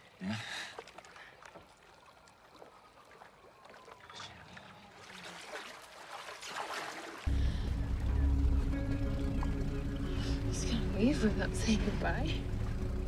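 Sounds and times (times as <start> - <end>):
water lapping against a board: 0.0 - 7.3.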